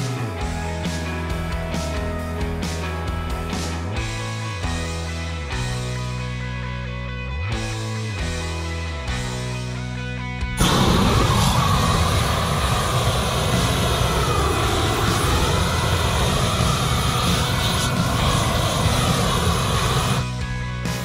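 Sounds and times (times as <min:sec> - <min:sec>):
flamethrower hissing: 0:10.6 - 0:21.0.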